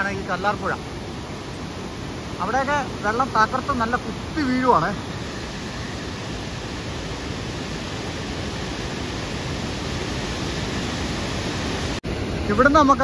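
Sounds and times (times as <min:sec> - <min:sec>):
water pouring down waterfall: 0:02.4 - 0:13.0.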